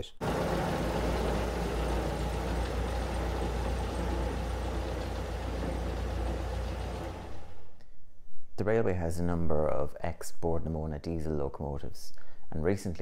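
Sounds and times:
diesel locomotive engine droning: 0.2 - 7.7.

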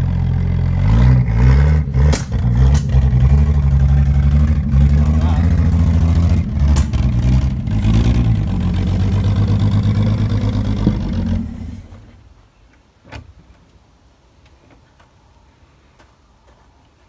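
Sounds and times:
car engine revving unevenly: 0.0 - 12.2
sharp knock: 2.1 - 3.0, 6.7 - 7.0.

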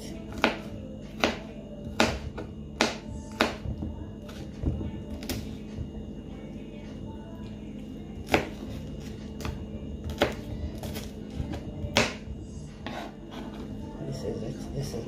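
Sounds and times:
knife chopping on cutting board: 0.3 - 3.6, 8.2 - 12.2, 12.8 - 13.6.

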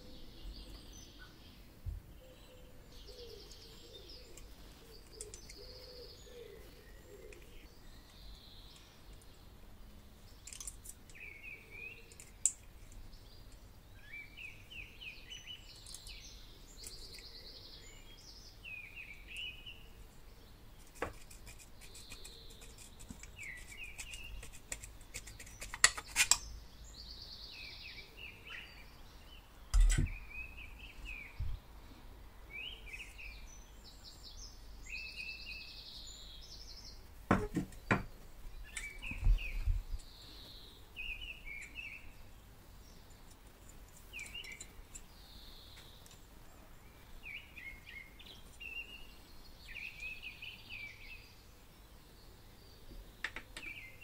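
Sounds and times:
small birds chirping: 0.0 - 54.0
metal parts clicking and knocking: 10.4 - 11.2.

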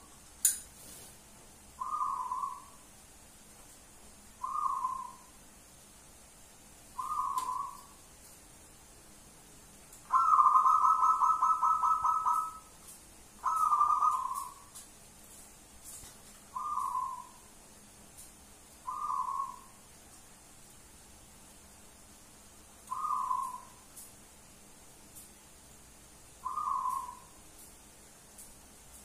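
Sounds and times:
dove cooing: 1.8 - 2.8, 4.4 - 5.3, 7.0 - 7.9, 10.1 - 12.7, 13.4 - 14.7, 16.5 - 17.4, 18.9 - 19.7, 22.9 - 23.8, 26.4 - 27.4.

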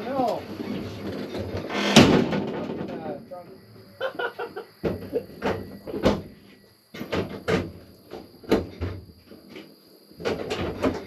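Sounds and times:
people laughing: 3.9 - 5.4.

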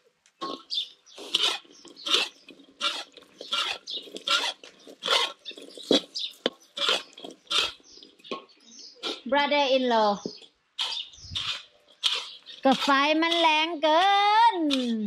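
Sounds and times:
metal spatula scraping a wok: 0.4 - 6.2, 10.8 - 13.7.

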